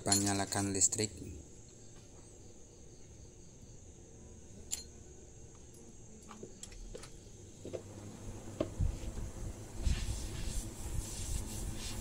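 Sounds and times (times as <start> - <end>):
compressor thump: 8.5 - 9.3.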